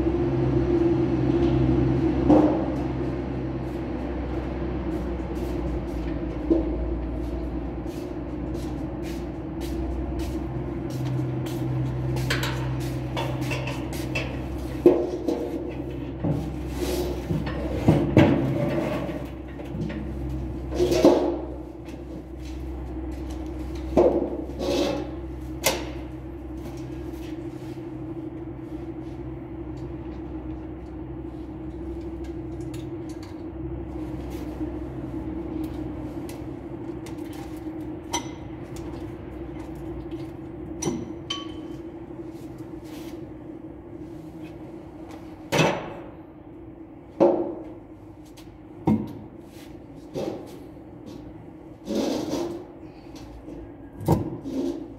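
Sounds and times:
tools clanking on engine: 16.9s - 21.6s.

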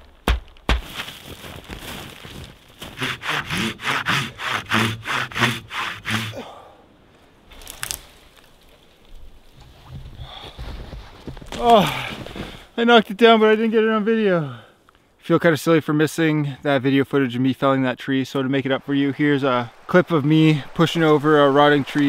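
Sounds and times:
tree cracking: 0.0s - 6.4s, 7.5s - 9.6s
hand saw cutting wood: 2.8s - 6.4s.

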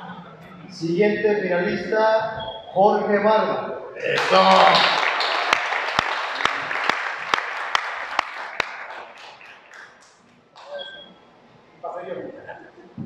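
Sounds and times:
audience applause and cheering: 4.0s - 10.7s.

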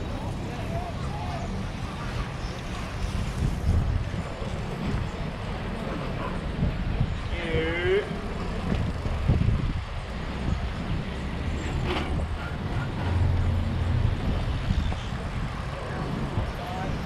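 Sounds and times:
freeway traffic: 0.0s - 17.0s
low engine hum: 7.9s - 17.0s.

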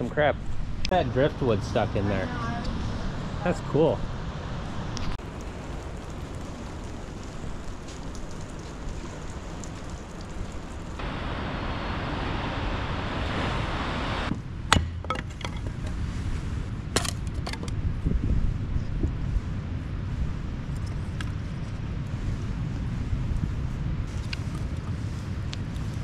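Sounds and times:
beach rushing noise: 0.6s - 14.3s
firewood knocking and clinking: 14.7s - 16.0s.

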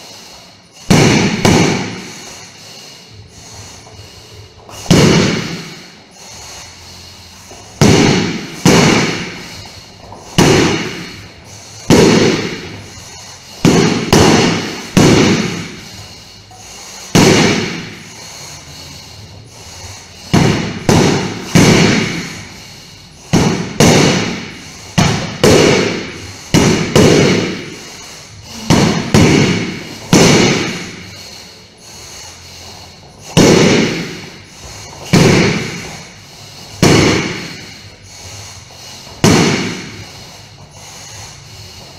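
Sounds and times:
sword striking punching bag: 0.9s - 2.1s, 4.8s - 5.7s, 7.8s - 9.4s, 10.4s - 11.1s, 11.9s - 12.8s, 13.6s - 15.8s, 17.1s - 18.0s, 20.3s - 22.4s, 23.3s - 27.8s, 28.6s - 31.0s, 33.4s - 34.2s, 35.1s - 35.9s, 36.8s - 37.6s, 39.2s - 40.0s.

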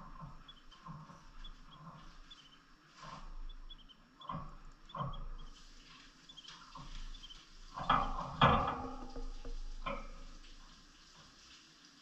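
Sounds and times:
small birds chirping: 0.0s - 8.4s.

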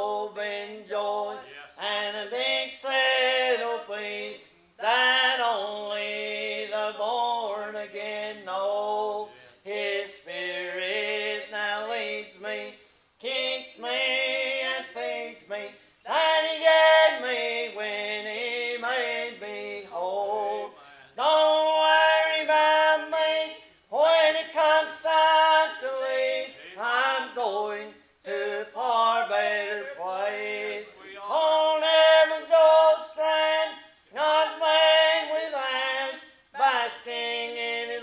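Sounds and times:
choir singing gospel song: 0.0s - 38.0s.

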